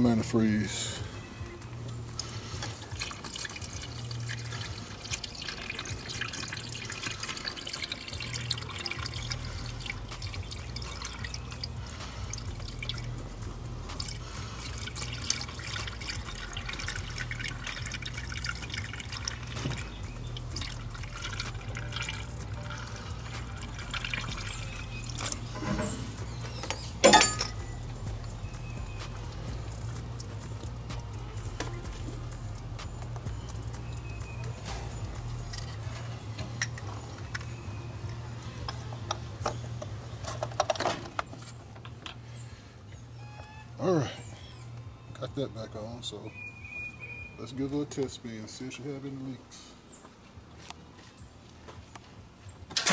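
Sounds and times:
liquid pouring through a funnel: 2.0 - 39.1.

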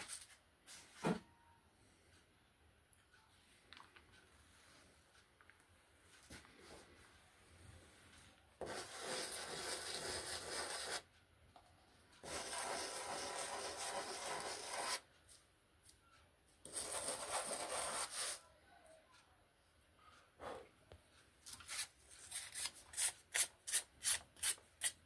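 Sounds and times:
clay scratching on sandpaper: 8.6 - 11.1, 12.2 - 15.0, 16.6 - 18.4, 21.5 - 25.0.

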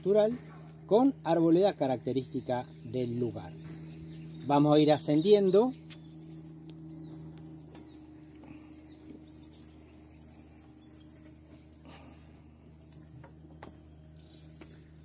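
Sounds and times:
insects chirping: 0.0 - 15.0
steady high whine: 0.0 - 15.0
footsteps on wooden planks: 12.9 - 13.9.

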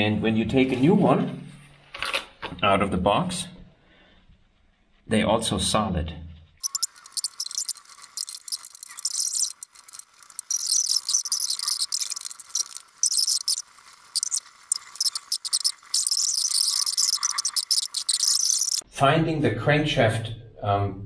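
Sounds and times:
rapid high-pitched chittering clicks: 6.6 - 18.8.

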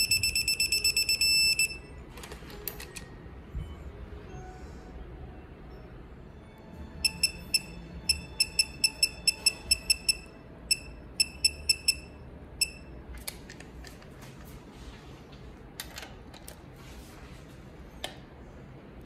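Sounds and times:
torque wrench beeping: 0.0 - 1.9, 7.0 - 12.9.

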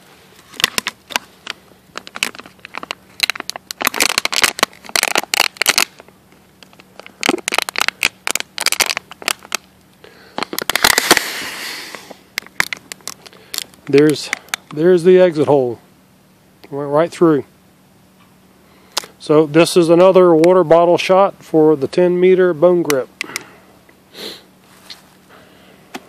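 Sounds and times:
plastic water bottle crackling: 0.4 - 9.7, 10.4 - 11.3, 12.4 - 14.8.

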